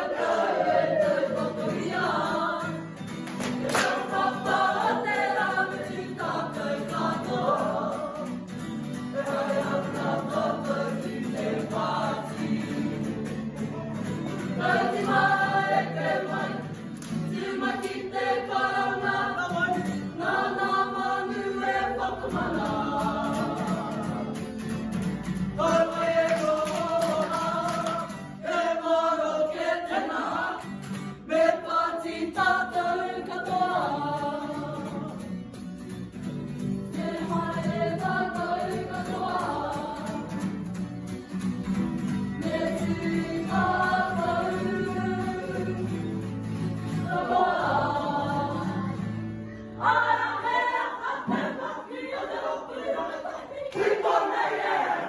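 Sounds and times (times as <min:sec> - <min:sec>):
group singing in unison: 0:00.0 - 0:35.4, 0:36.2 - 0:40.9, 0:41.6 - 0:55.0
guitar: 0:00.0 - 0:54.1.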